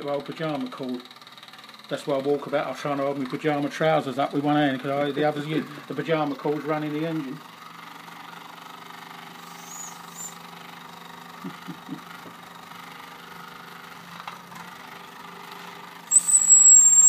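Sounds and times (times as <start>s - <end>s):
toy steam engine whirring hum: 0.2s - 2.3s, 3.7s - 14.0s, 15.2s - 17.0s
faint high squeaks: 9.5s - 10.4s, 16.1s - 17.0s.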